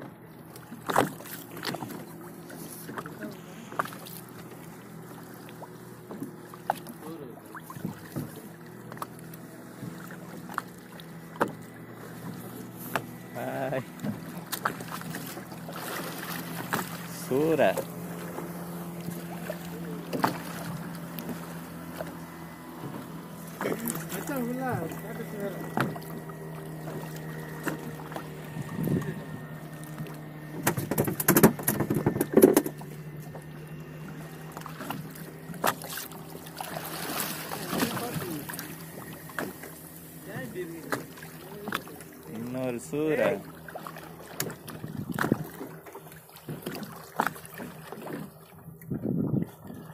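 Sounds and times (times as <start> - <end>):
boat engine idling: 0.0 - 49.9
sharp knocks on boat: 0.8 - 2.1, 6.0 - 6.9, 7.6 - 9.1, 9.8 - 13.2, 13.9 - 25.0, 25.6 - 33.5, 34.5 - 39.8, 40.8 - 42.0, 43.9 - 49.1.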